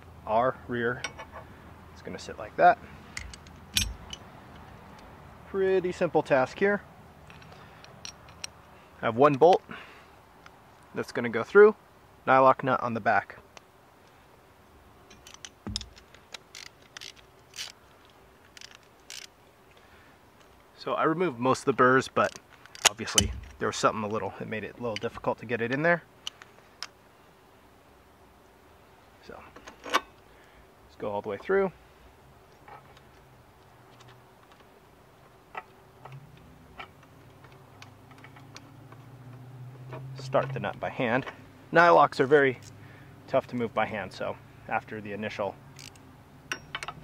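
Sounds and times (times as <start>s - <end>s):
metallic clicks of bolt: 3.1s - 5.1s, 7.3s - 8.6s, 15.1s - 19.4s, 22.2s - 23.6s, 45.8s - 47.0s
bolt scraping and clicking in hole: 15.1s - 19.3s.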